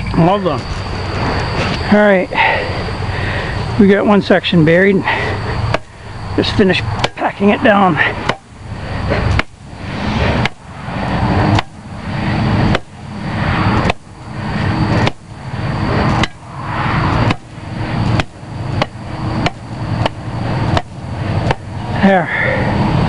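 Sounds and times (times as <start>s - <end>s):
shovel blade striking soil: 9.2s - 9.6s, 10.3s - 10.6s, 11.5s - 11.8s, 12.7s - 12.9s, 15.0s - 15.2s, 16.2s - 16.4s, 17.2s - 17.5s.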